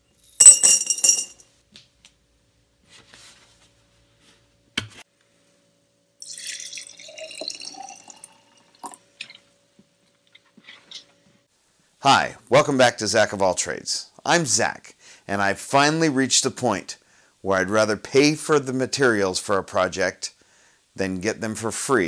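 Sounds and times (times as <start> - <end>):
nails clattering into glass jar: 0.2 - 1.4
liquid gurgling into jar: 6.2 - 9.0.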